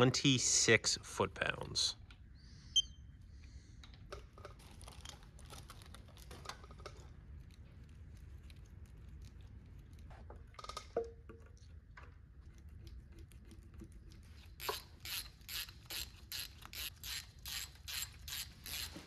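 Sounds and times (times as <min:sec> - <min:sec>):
ratchet wrench clicking: 0:14.6 - 0:18.9.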